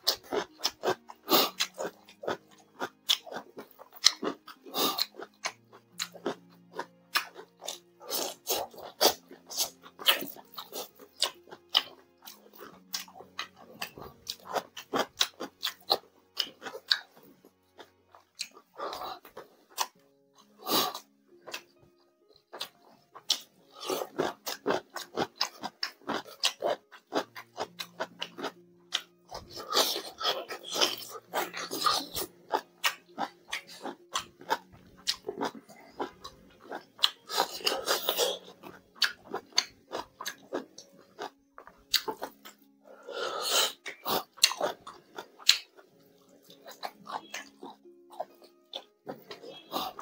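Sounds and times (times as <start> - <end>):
close chewing and mouth smacks: 0.0 - 50.0.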